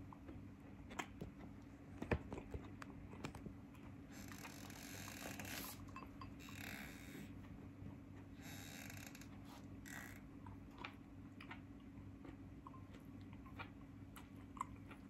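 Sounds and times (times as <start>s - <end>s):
chewing: 0.0s - 4.6s, 9.3s - 15.0s
low steady hum: 0.0s - 15.0s.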